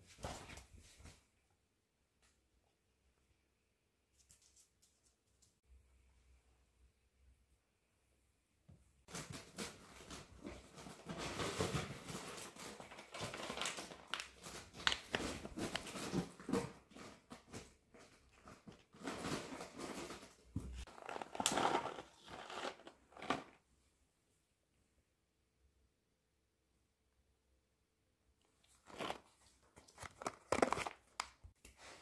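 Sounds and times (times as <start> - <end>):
paper pouch crinkling: 20.9 - 23.6, 28.7 - 31.4.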